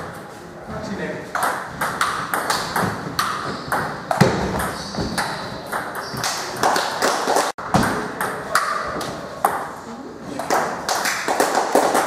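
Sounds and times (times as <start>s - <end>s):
table tennis ball pinging: 1.4s - 6.5s, 7.6s - 9.8s.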